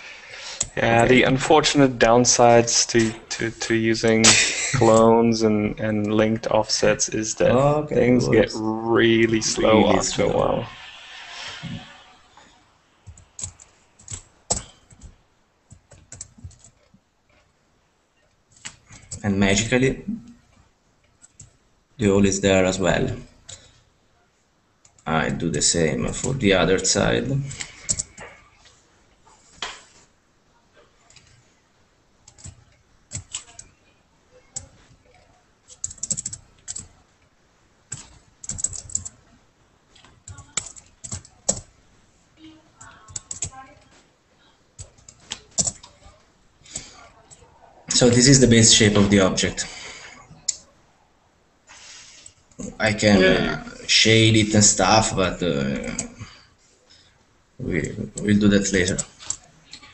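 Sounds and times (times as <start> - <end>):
computer keyboard typing: 13.0 - 17.5, 18.5 - 19.2, 20.5 - 21.6, 26.1 - 28.4, 31.0 - 31.5, 32.2 - 37.1, 37.8 - 41.8, 42.8 - 44.0, 44.8 - 49.6, 58.0 - 59.9
keyboard keystrokes clicking: 35.7 - 36.9, 44.8 - 46.1.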